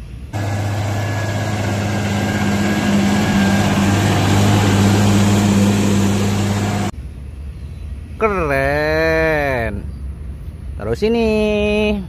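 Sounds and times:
tractor diesel engine droning: 0.3 - 6.9.

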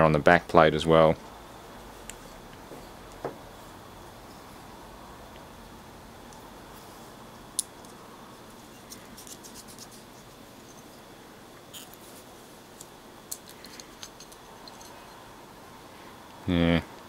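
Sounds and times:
metal parts clicking and scraping: 12.8 - 15.2.

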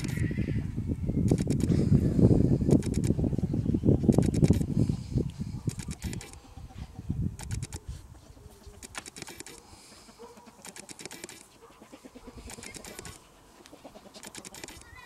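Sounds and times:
dog sniffing: 8.6 - 14.8.

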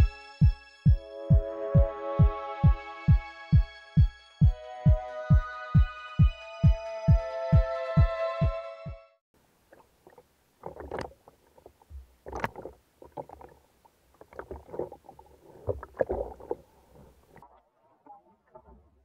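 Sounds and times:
water sloshing and splashing: 9.6 - 19.0.

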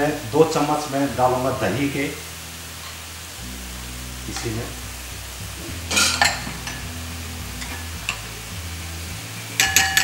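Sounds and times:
masala sizzling in a frying pan: 0.0 - 10.0
ladle scraping pan: 5.7 - 6.8.

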